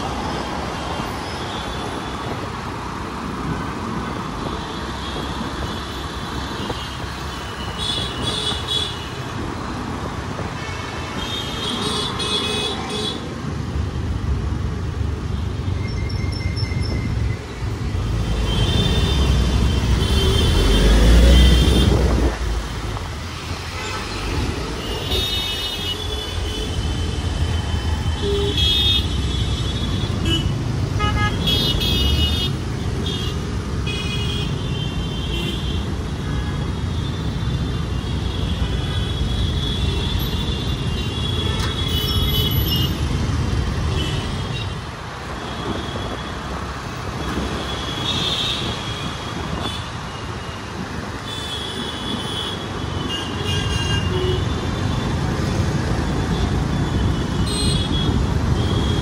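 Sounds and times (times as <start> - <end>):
traffic rumble: 0.0 - 59.0
vehicle horns honking: 28.1 - 33.3, 57.1 - 59.0.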